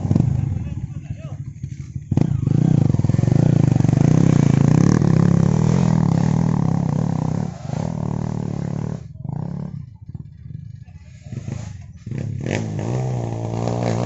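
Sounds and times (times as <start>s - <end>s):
dirt bike engine revving: 1.7s - 9.9s, 11.1s - 14.0s.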